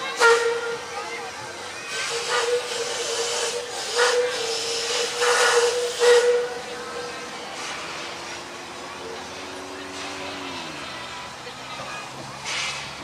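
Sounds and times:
steam train steady tone: 0.0 - 13.0
steam hissing bursts: 1.8 - 8.4, 12.4 - 13.0.

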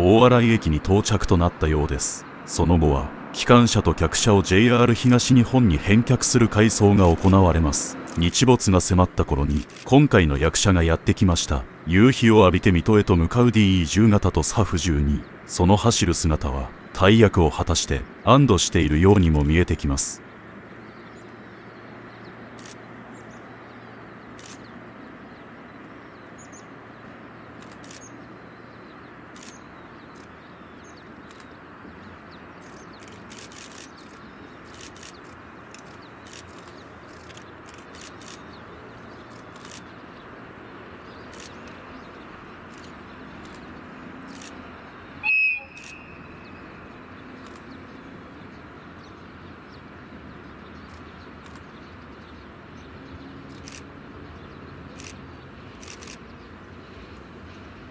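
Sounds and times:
sharp high-pitched sound: 45.2 - 46.4
short bird chirps: 45.2 - 47.8.

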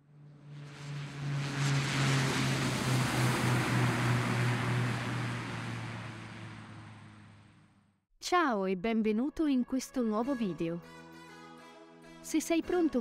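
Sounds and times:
jet airliner passing: 0.0 - 7.8.

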